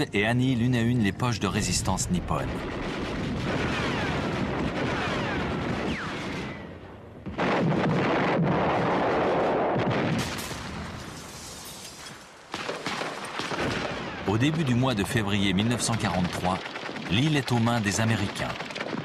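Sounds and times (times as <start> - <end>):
rifle and machine-gun fire: 2.6 - 6.6, 12.5 - 19.0.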